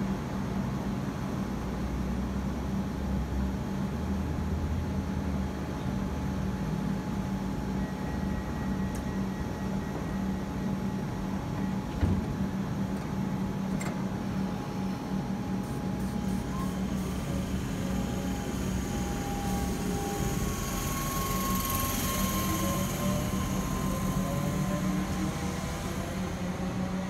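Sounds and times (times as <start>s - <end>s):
faint steady whine: 5.1s - 27.0s
train equipment humming: 7.3s - 27.0s.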